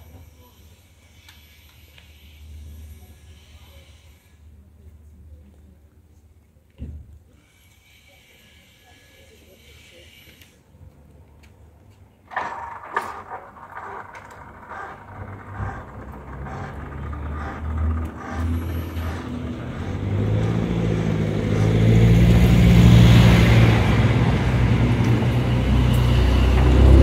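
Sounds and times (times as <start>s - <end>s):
vehicle engines moving off: 12.3s - 27.0s.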